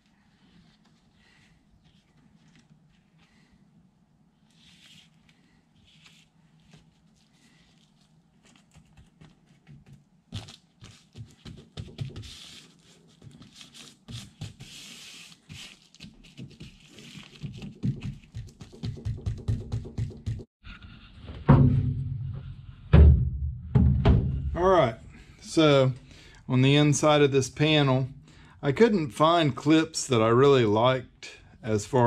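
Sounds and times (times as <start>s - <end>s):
plastic sheet rustling and crinkling: 4.6s - 19.0s
low thumps: 21.3s - 24.7s.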